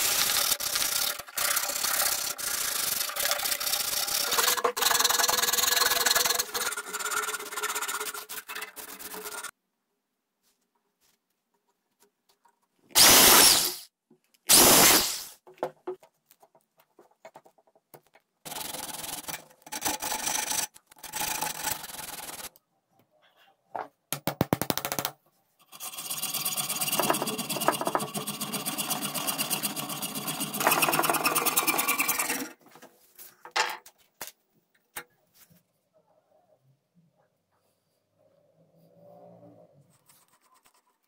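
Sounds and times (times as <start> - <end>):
hand tools scraping wood: 0.0 - 9.5, 25.7 - 32.9
rasping strokes: 0.0 - 9.5, 25.6 - 32.6
sawing through bamboo: 0.0 - 9.5, 18.5 - 22.5, 25.6 - 32.6.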